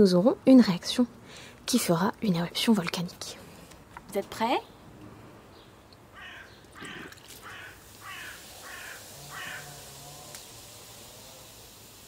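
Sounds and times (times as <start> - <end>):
bird calling: 5.6 - 9.8.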